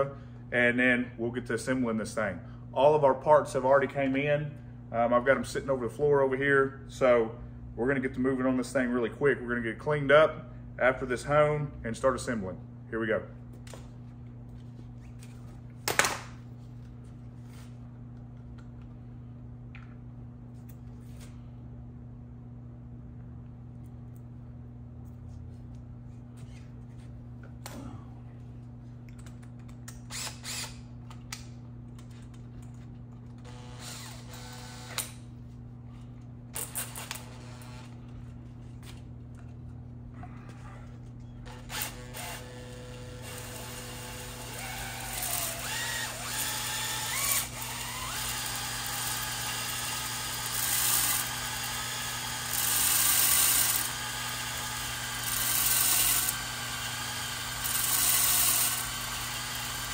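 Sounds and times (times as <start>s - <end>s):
electric drill honing cylinder: 33.4s - 35.1s, 41.5s - 59.9s.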